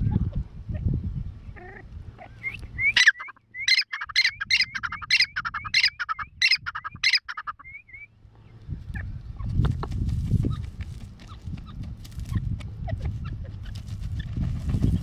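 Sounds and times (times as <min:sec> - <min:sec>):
francolin calling: 0:01.6 - 0:08.2.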